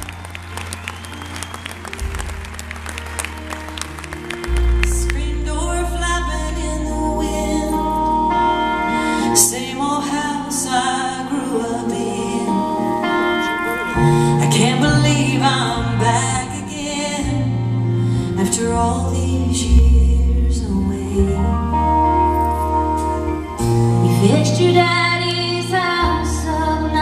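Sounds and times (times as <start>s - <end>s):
bass notes: 0.0s - 10.3s, 14.0s - 27.0s
woman singing country ballad: 4.8s - 27.0s.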